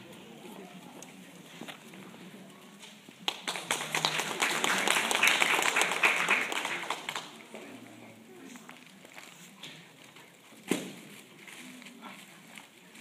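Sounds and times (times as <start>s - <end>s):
audience applauding: 3.2s - 7.5s.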